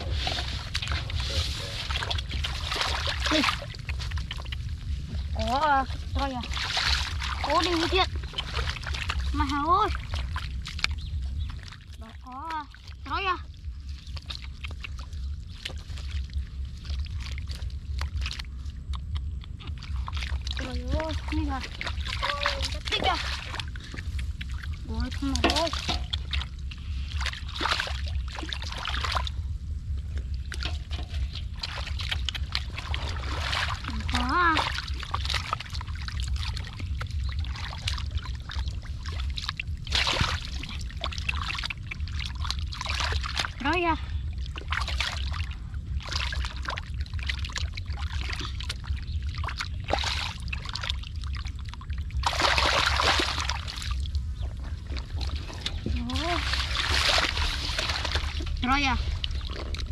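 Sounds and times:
hands splashing in muddy water: 0.0s - 13.1s, 13.8s - 29.4s, 30.1s - 59.9s
steady low rumble: 0.0s - 59.9s.

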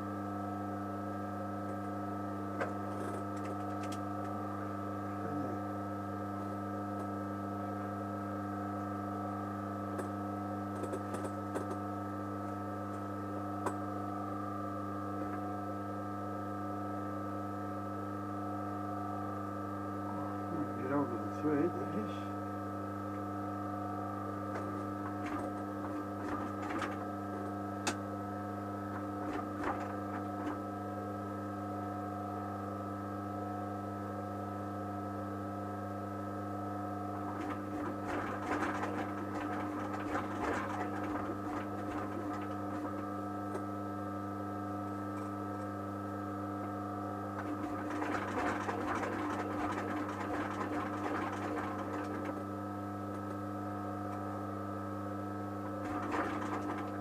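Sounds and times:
electrical hum: 0.0s - 57.0s
sewing machine stitching: 24.5s - 27.1s, 28.9s - 30.6s, 37.2s - 43.0s, 47.4s - 52.4s, 55.7s - 57.0s.

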